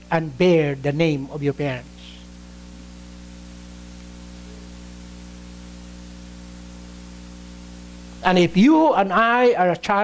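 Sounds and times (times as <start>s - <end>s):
constant hiss: 0.0s - 10.0s
electrical hum: 0.0s - 10.0s.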